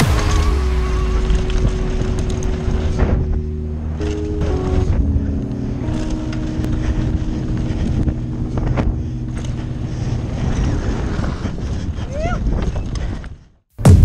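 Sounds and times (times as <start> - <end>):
bike tyre and frame rumble: 0.0 - 13.6
wind rushing over microphone: 1.0 - 13.5.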